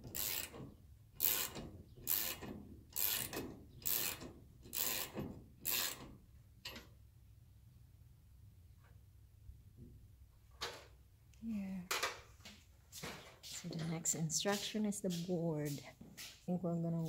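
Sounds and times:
ratchet wrench strokes: 0.1 - 0.6, 1.2 - 6.1.

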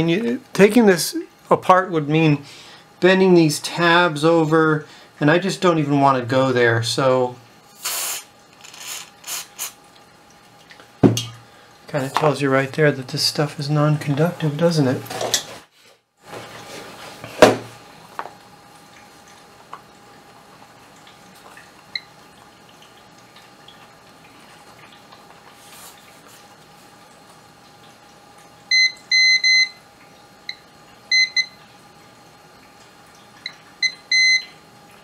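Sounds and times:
multimeter beeper short beeps: 28.7 - 29.8, 31.1 - 31.6, 33.8 - 34.5.

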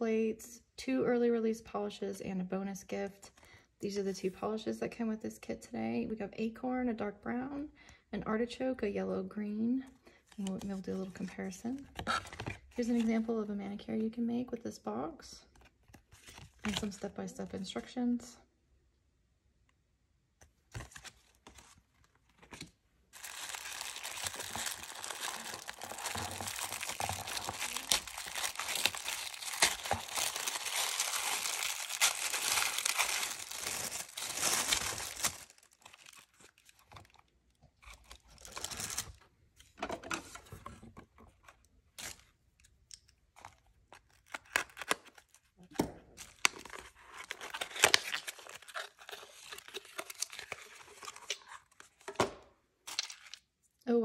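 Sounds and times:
paper packaging crackling: 20.7 - 39.2, 46.2 - 52.1
tissue paper crinkling and rustling: 20.7 - 39.2, 46.2 - 52.0.

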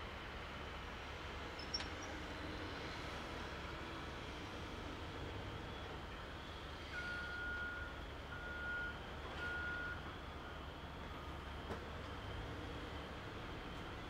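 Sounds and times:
diesel engine drone: 0.0 - 14.0
backup alarm beeps: 7.0 - 10.0.

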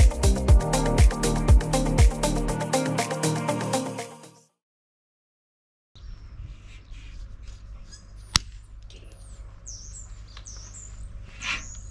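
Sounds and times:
small birds chirping: 6.0 - 11.9.

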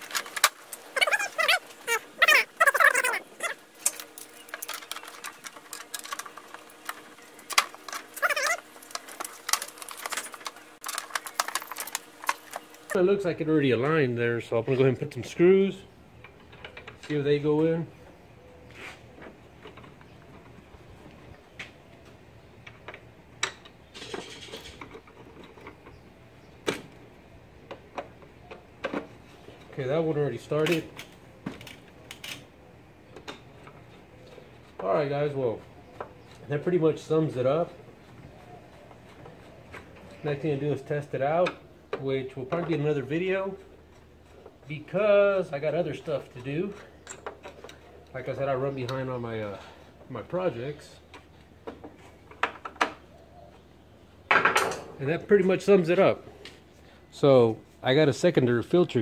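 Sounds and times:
short squeaky chirps: 0.9 - 4.6, 8.1 - 8.7.

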